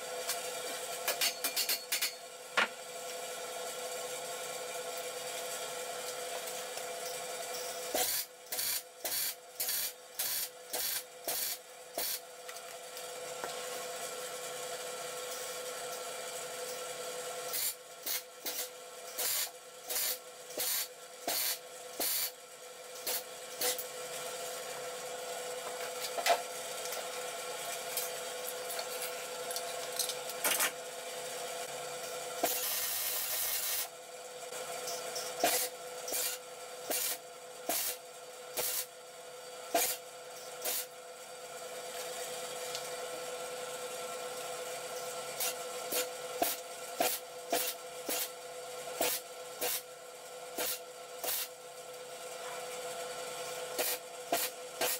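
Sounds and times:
welding arc crackling: 7.9s - 12.2s, 17.5s - 22.4s, 32.4s - 33.9s, 50.6s - 51.5s.

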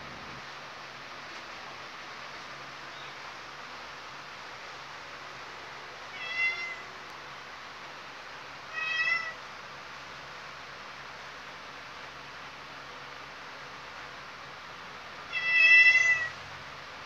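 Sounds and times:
faint steady hiss: 0.0s - 17.0s
cat meowing: 6.1s - 6.9s, 8.7s - 9.4s, 15.3s - 16.4s.

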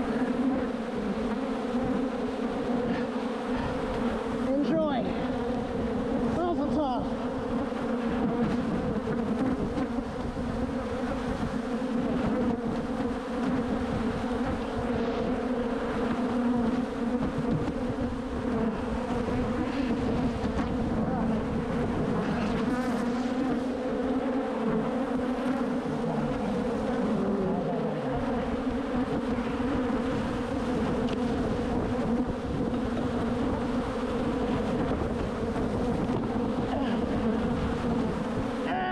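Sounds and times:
bees buzzing: 0.0s - 38.9s.

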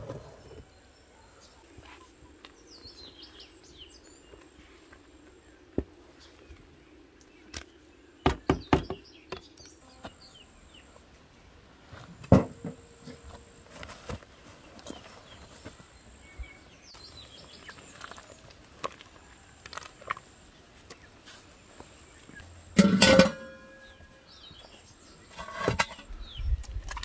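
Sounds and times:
small birds chirping: 0.0s - 22.7s, 23.6s - 26.9s
wooden paddle knocking metal pot: 22.8s - 24.0s.

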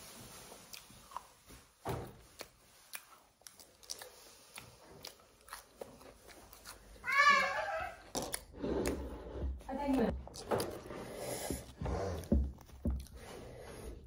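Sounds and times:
person chewing and crunching: 0.6s - 1.5s, 2.2s - 7.1s, 10.2s - 13.4s.

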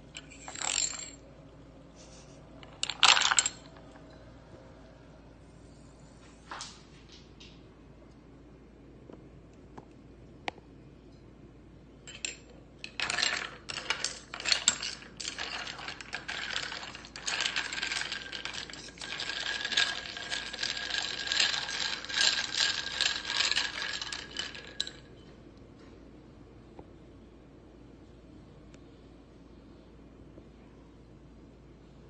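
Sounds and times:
spoon and ice clinking in glass: 12.1s - 25.2s.

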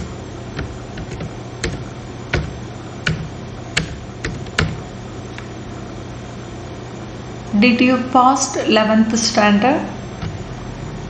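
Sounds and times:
keyboard keys clicking: 0.0s - 4.8s
steady low hum: 0.0s - 11.0s.

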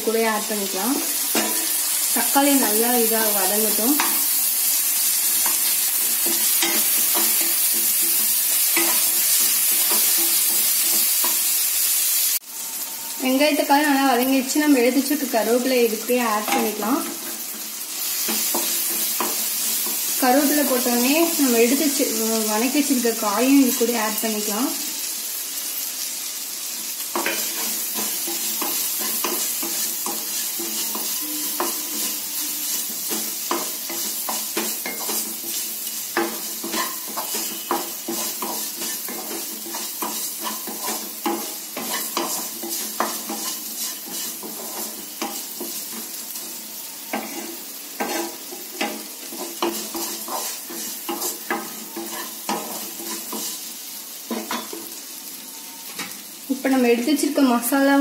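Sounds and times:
vegetables sizzling in hot oil: 0.0s - 58.0s
wooden spatula scraping pan: 36.2s - 46.1s, 47.1s - 53.7s.

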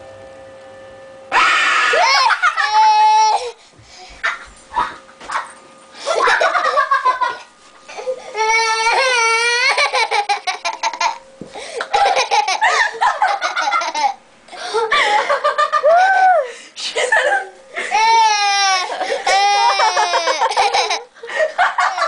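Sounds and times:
long wavering squeal: 0.0s - 3.6s
child giggling: 1.9s - 3.6s, 4.2s - 11.2s, 11.8s - 16.3s, 16.9s - 22.0s.

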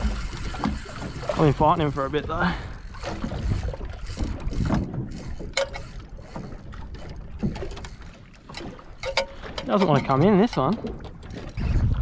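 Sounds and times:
water lapping against boat hull: 0.0s - 12.0s
wind on microphone: 3.2s - 7.7s, 11.2s - 12.0s.

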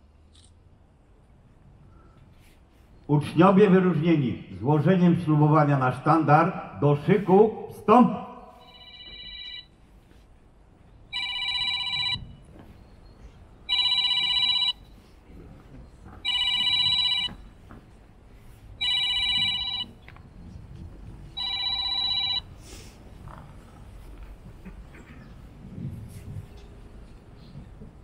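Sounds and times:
electronic telephone ringing: 8.6s - 9.8s, 11.1s - 12.4s, 13.7s - 14.9s, 16.2s - 17.4s, 18.8s - 20.0s, 21.4s - 22.5s.

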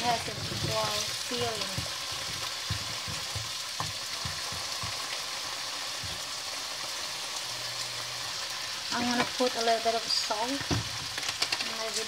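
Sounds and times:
vegetables sizzling in a pan: 0.0s - 12.0s
wooden spatula knocking on pan: 0.3s - 5.2s, 6.0s - 6.3s.

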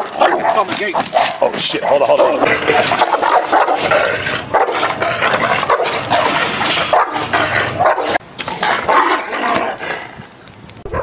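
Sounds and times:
large dog barking: 0.0s - 9.8s.

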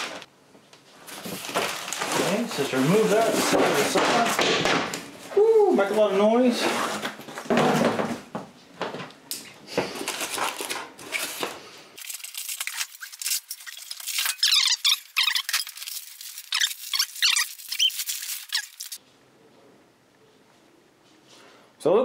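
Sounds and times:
rustling handling: 0.0s - 8.1s, 9.8s - 19.0s
styrofoam squeaking: 1.3s - 4.3s, 12.0s - 19.0s.

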